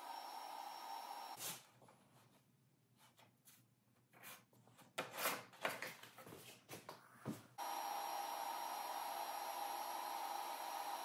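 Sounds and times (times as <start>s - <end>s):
steady machine whir: 0.0s - 1.4s, 7.6s - 11.0s.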